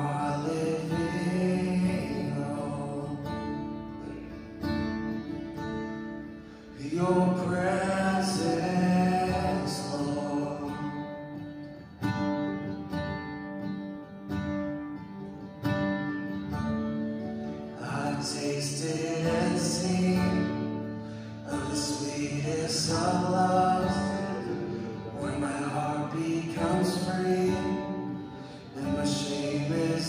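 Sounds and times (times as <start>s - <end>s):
acoustic guitar: 0.0s - 30.0s
person singing: 6.8s - 11.1s, 17.8s - 30.0s.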